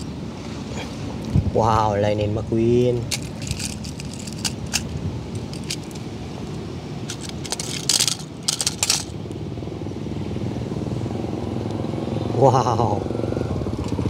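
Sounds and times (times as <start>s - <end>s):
steady low rumble: 0.0s - 10.2s
metal toy cars clattering: 3.0s - 6.0s, 7.1s - 9.2s.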